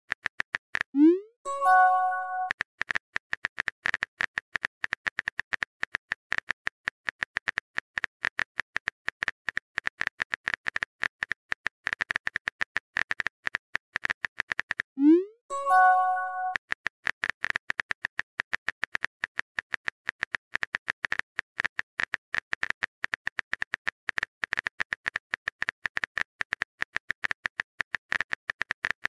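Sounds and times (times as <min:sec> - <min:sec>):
message send pop: 0:01.0 - 0:02.5, 0:15.0 - 0:16.6.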